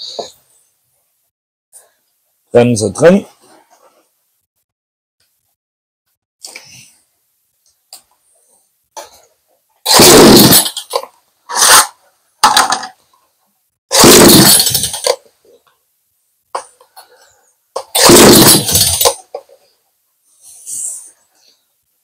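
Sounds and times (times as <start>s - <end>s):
chainsaw pull-start pulls: 9.9s - 11.9s, 13.9s - 15.2s, 17.8s - 19.2s
faint hiss: 19.6s - 22.0s.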